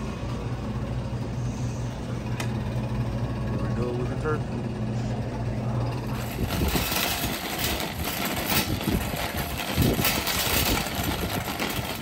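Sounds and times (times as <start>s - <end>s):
cart wheels rumbling on asphalt: 6.2s - 12.0s.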